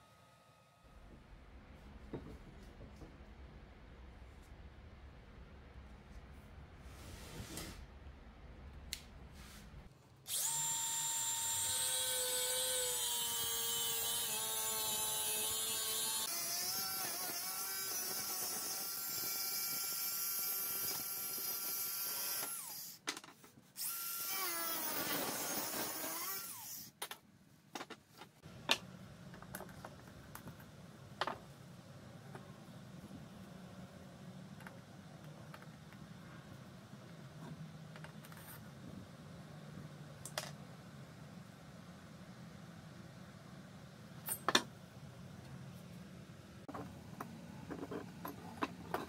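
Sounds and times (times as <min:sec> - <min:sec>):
angle grinder cutting steel: 0:10.3 - 0:23.0.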